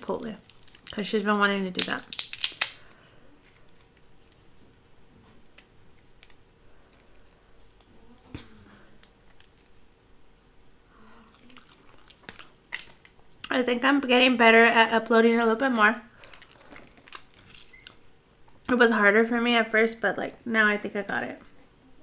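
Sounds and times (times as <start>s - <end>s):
crab shell cracking: 0.4s - 1.0s, 1.8s - 8.2s, 8.8s - 10.4s, 11.5s - 13.2s.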